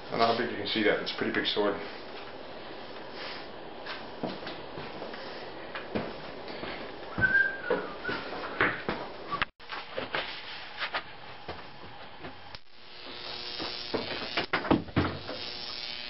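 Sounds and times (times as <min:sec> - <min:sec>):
electric arc buzzing and hissing: 0:00.0 - 0:07.1, 0:10.4 - 0:16.0.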